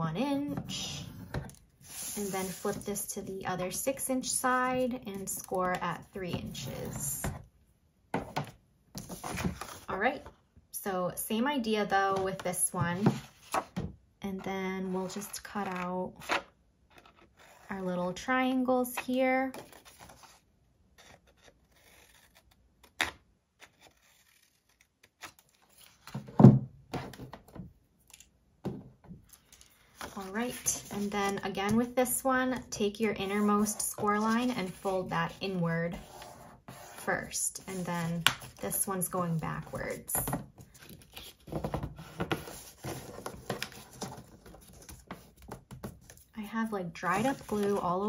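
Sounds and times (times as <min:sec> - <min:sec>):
paper folding and creasing: 0:21.0 - 0:26.2, 0:36.0 - 0:46.3, 0:47.1 - 0:47.9.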